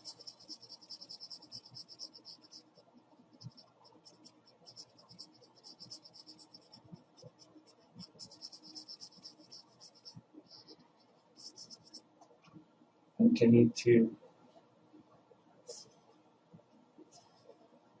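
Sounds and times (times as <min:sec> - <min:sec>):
marker scratching on paper: 0:00.0 - 0:12.0.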